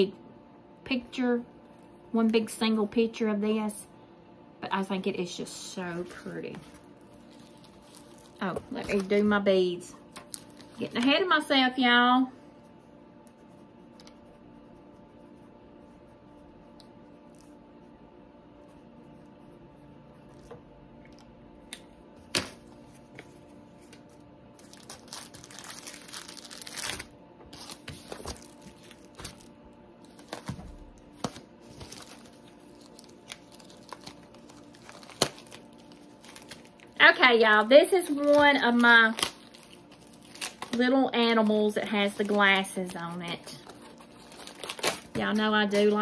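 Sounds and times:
plastic packaging crinkling: 0:05.6 - 0:11.6, 0:22.3 - 0:46.0.

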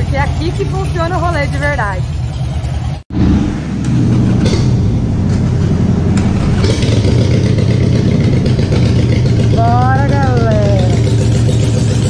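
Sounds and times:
motorcycle engine idling: 0:00.0 - 0:03.0, 0:03.6 - 0:12.0.

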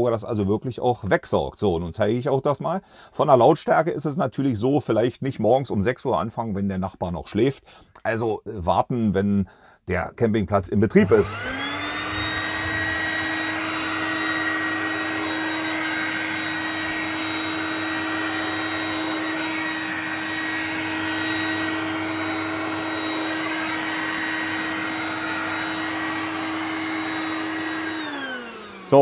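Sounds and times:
handheld vacuum cleaner running: 0:11.0 - 0:29.0.

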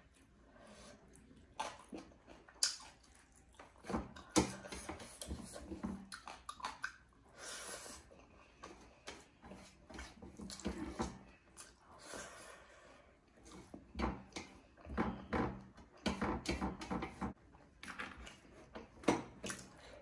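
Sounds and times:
wet chewing and smacking: 0:01.0 - 0:07.3, 0:10.1 - 0:12.0, 0:17.6 - 0:19.8.

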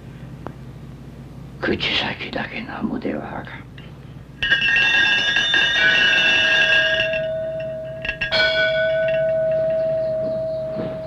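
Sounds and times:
small bell ringing: 0:04.4 - 0:11.0.

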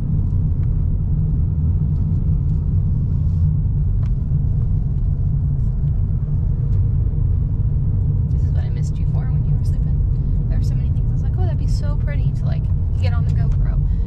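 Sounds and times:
car driving interior rumble: 0:00.0 - 0:14.0.

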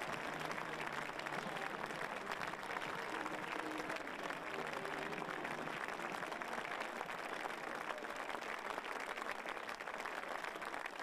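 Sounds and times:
spectators applauding: 0:00.0 - 0:11.0.

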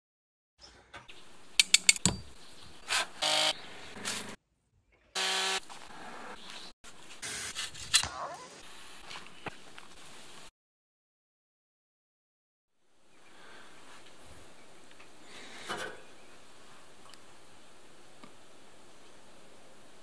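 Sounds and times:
chainsaw running: 0:03.2 - 0:03.5, 0:05.2 - 0:05.6.

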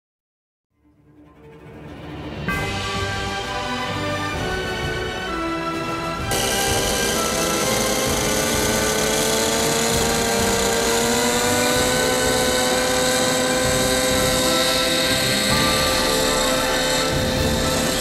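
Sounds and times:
model helicopter engine: 0:04.4 - 0:18.0.

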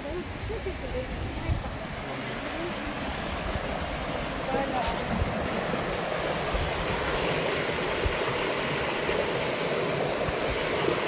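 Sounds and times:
stream rushing over boulders: 0:00.0 - 0:11.0.

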